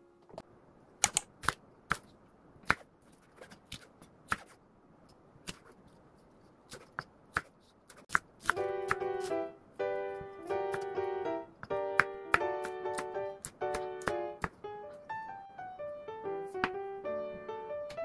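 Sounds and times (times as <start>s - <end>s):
piano music: 8.5s - 18.0s.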